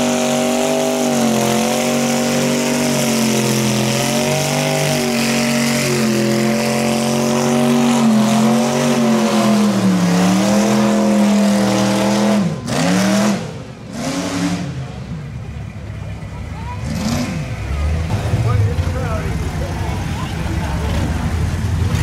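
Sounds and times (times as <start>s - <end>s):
engine revving high: 0.0s - 14.9s, 16.8s - 18.6s.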